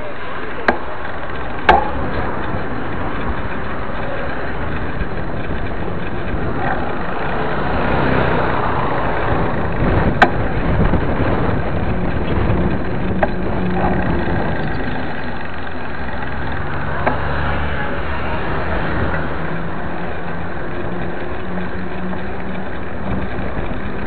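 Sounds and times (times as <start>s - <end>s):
tyre noise on pavement: 0.0s - 24.0s
wind on microphone: 4.6s - 15.4s.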